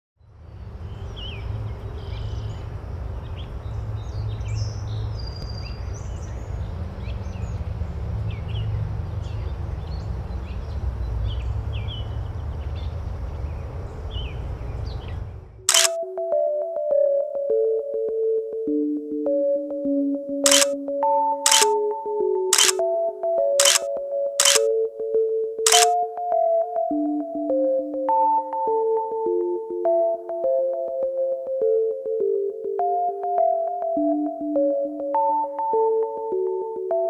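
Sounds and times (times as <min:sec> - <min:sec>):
camera shutter click: 0:15.7 - 0:16.0, 0:20.5 - 0:20.8, 0:21.5 - 0:21.8, 0:22.6 - 0:22.8, 0:23.6 - 0:24.7, 0:25.7 - 0:26.0.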